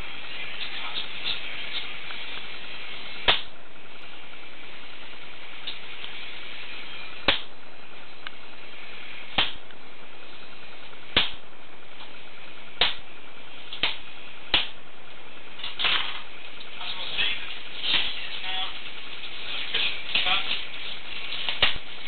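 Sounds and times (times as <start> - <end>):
steady hiss: 0.0 - 22.0.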